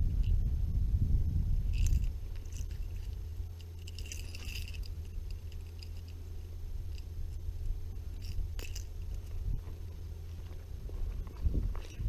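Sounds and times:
steady low rumble: 0.0s - 12.0s
fishing gear clicks and rattles: 1.7s - 6.2s, 8.1s - 12.0s.

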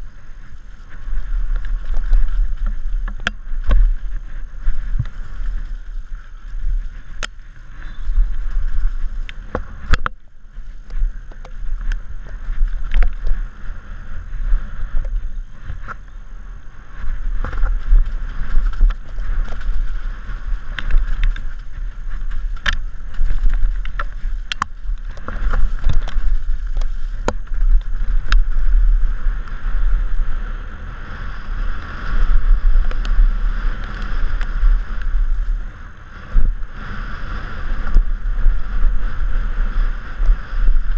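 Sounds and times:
bike knocks and rattles: 0.0s - 13.6s, 17.0s - 29.1s
wind buffeting microphone: 0.0s - 40.9s.

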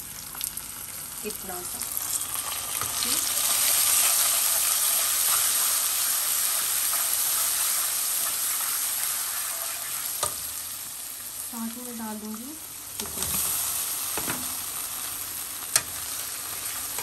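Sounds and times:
paste sizzling in hot oil: 1.4s - 11.7s.

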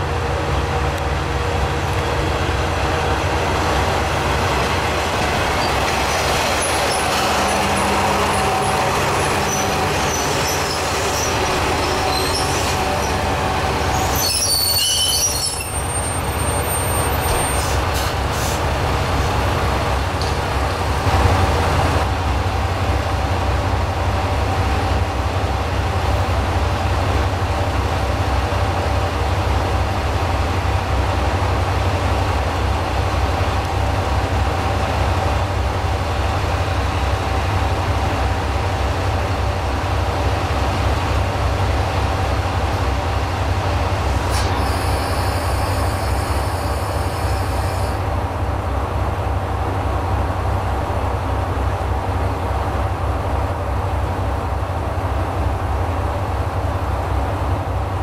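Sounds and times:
diesel railcar idling hum: 0.0s - 58.0s
brake and wheel squeal: 5.5s - 13.3s, 13.9s - 18.6s, 44.3s - 48.0s.

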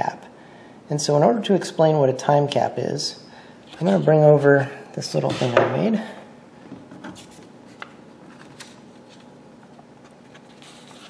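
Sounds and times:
paper rustling: 7.0s - 9.3s, 10.0s - 11.0s.

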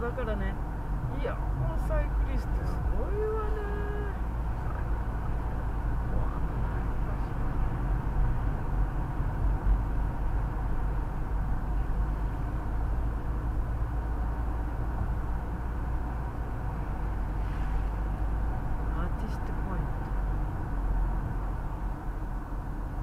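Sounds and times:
car engine rumble: 0.0s - 23.0s.

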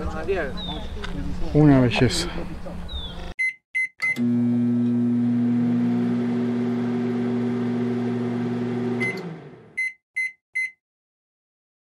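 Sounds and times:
electric motor hum: 4.2s - 9.8s
short high electronic beeps: 9.8s - 10.8s.

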